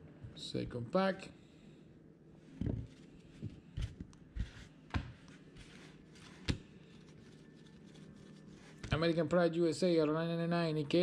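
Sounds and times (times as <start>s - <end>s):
cards rustling: 5.3s - 9.0s.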